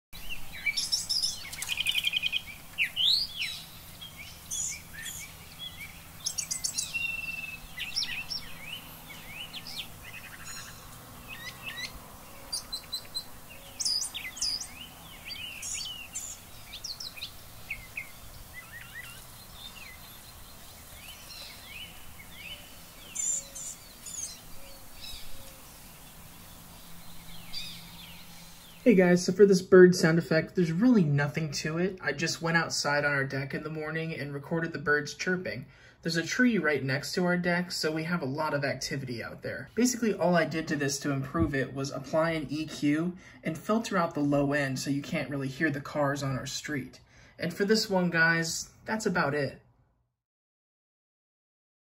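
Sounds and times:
songbirds chirping and singing: 0.2 - 35.3.

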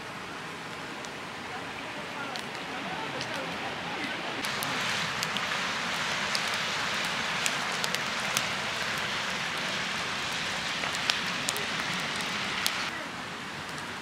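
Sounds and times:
fire crackling and hissing: 0.0 - 14.0
logs popping: 3.2 - 12.9.

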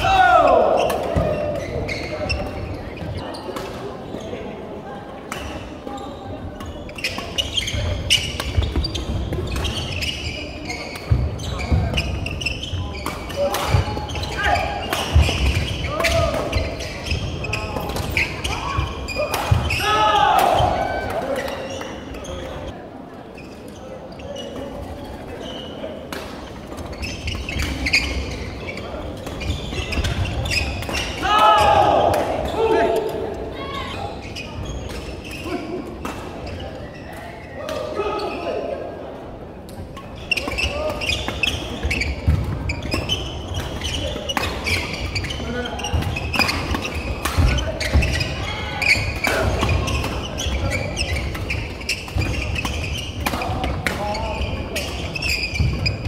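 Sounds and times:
shoes squeaking on wooden floor: 0.8 - 3.5, 5.9 - 13.2, 13.8 - 20.7, 26.7 - 35.6, 40.0 - 56.0
rackets hitting shuttlecock: 13.0 - 17.1, 40.4 - 56.0.

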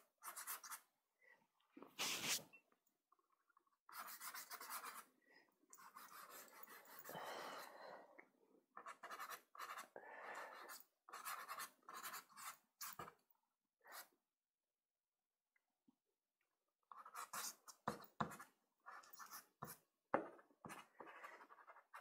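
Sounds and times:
pastel stick scratching paper: 0.2 - 0.8, 3.9 - 5.1, 8.8 - 10.0, 10.6 - 13.1, 17.0 - 19.8, 20.7 - 22.0.

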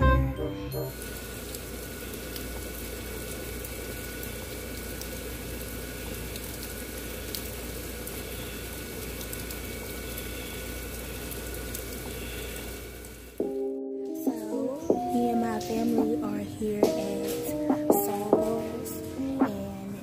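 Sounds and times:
steady rain hissing: 0.8 - 20.0
sharp drip ticks: 6.0 - 12.6.

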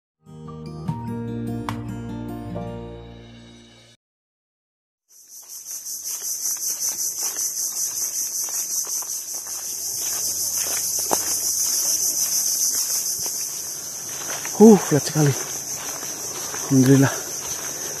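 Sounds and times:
insects shrilling: 5.1 - 18.0.

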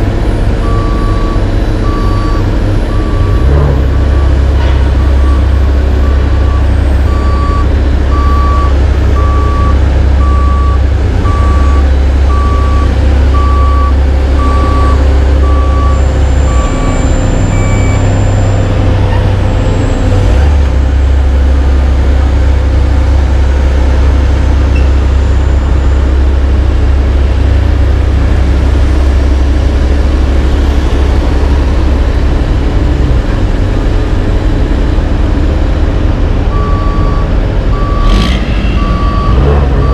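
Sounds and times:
heavy diesel engines running: 0.0 - 39.9
backup alarm beeping: 0.6 - 4.4, 5.1 - 18.1, 36.5 - 39.9.

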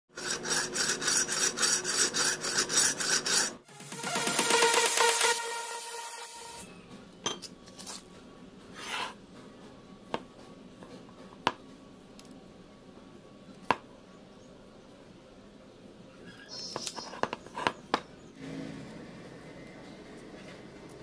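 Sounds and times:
musical intro sting: 3.7 - 6.9
metal scrape on workbench: 8.7 - 9.2.

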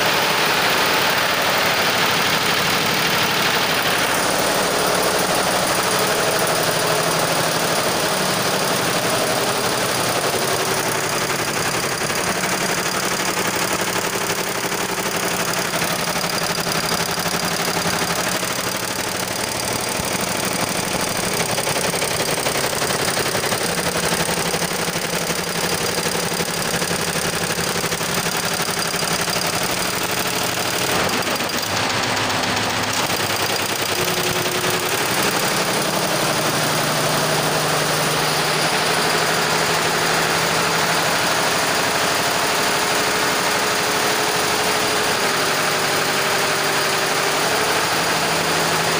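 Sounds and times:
embroidery machine clattering: 0.0 - 37.5.

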